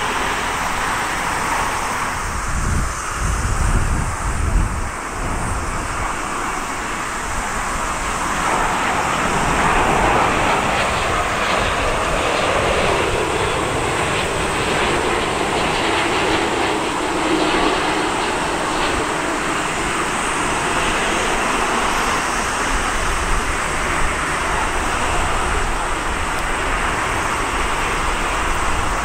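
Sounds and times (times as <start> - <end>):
jet engines roaring: 0.0 - 29.0.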